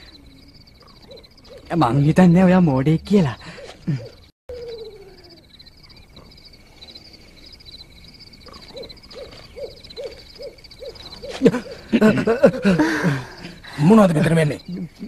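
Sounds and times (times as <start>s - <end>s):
owl hooting: 0.0s - 1.8s, 3.4s - 7.0s, 8.4s - 12.0s
insects chirring: 0.0s - 15.0s.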